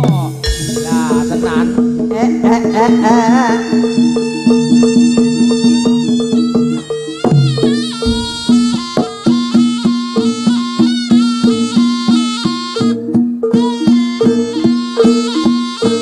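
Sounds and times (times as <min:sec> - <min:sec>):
gongs and gong-chimes: 0:00.0 - 0:10.3
drums: 0:00.0 - 0:16.0
shawm melody: 0:00.0 - 0:16.0.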